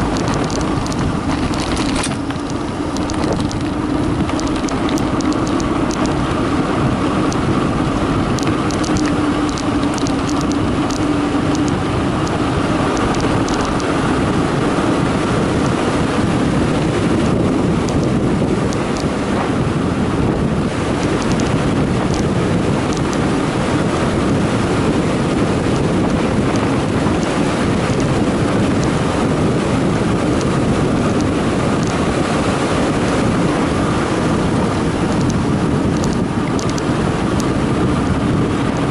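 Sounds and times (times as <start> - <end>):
light clicking rattles: 0.0 - 6.4, 8.3 - 14.0, 17.8 - 19.1, 20.9 - 23.2, 35.1 - 38.2
loud wind noise on microphone: 0.0 - 38.9
tyres humming on concrete: 0.0 - 38.9.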